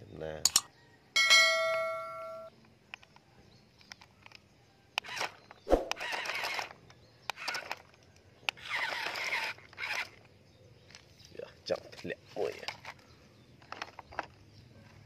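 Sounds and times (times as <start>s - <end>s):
sharp plastic clicks: 2.6s - 11.1s
toy truck wheels scraping on grit: 5.9s - 6.8s, 8.6s - 10.2s.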